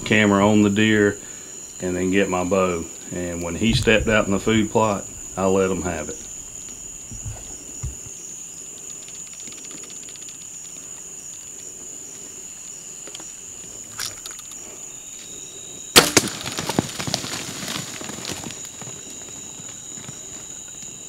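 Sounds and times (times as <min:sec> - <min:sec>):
insect chorus: 0:00.0 - 0:21.0
deer crashing through brush: 0:03.6 - 0:08.2, 0:16.0 - 0:20.2
arrow hitting deer smack: 0:16.0 - 0:16.6.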